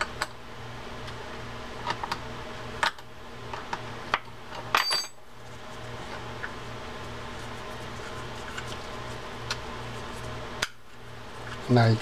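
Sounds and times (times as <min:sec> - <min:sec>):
metallic click and ring: 0:04.8 - 0:05.2.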